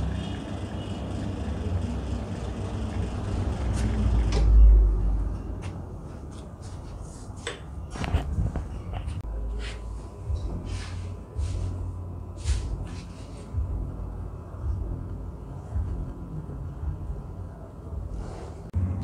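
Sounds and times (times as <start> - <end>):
espresso machine pump hum: 0.0 - 4.4.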